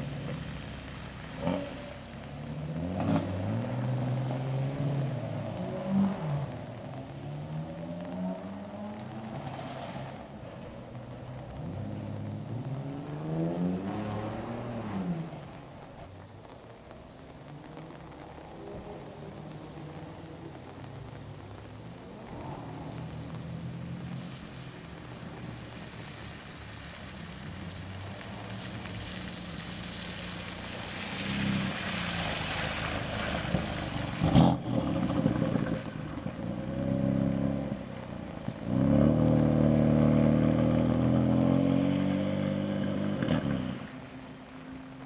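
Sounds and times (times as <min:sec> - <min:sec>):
car accelerating: 0:00.0 - 0:10.2, 0:11.3 - 0:15.8, 0:17.4 - 0:45.0
car engine: 0:00.0 - 0:45.0
tyres hissing through water: 0:17.8 - 0:40.6.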